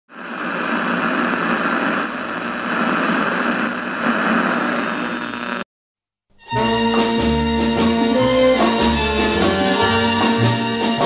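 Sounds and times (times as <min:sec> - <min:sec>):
radio static hiss: 0:00.1 - 0:05.7.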